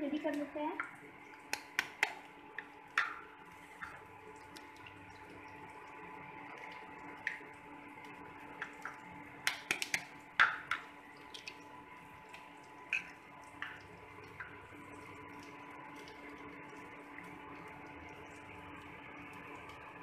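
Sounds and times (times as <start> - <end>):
faint steady hum: 0.0 - 20.0
eggs tapping on steel bowl: 1.5 - 2.2, 8.6 - 10.9.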